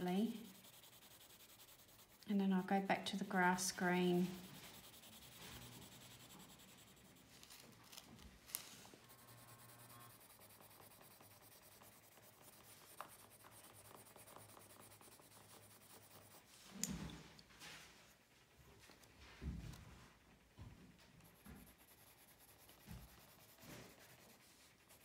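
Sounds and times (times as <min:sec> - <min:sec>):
pencil scratching on paper: 0:00.0 - 0:16.6, 0:21.2 - 0:25.0
paper rustle: 0:07.3 - 0:08.9.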